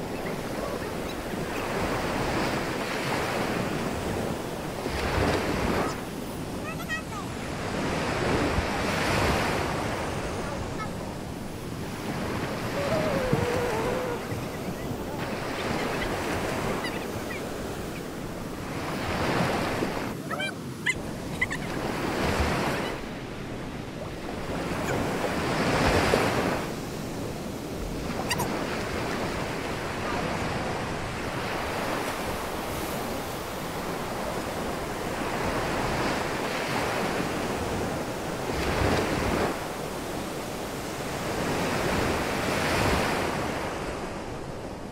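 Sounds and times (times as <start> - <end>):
ocean surf breaking: 0.0 - 44.5
wind on microphone: 7.5 - 20.2.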